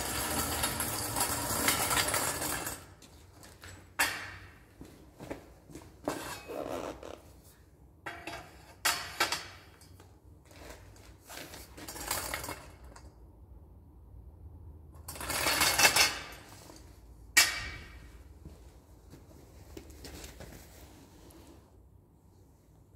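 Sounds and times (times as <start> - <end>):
metal scraping rattle: 0.0 - 2.9
metal frame clanking and rattling: 15.1 - 18.2.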